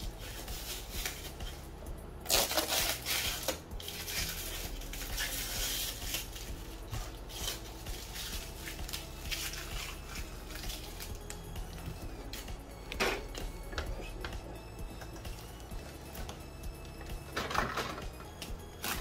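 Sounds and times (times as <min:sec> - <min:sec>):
packing material rustling: 0:02.3 - 0:11.5.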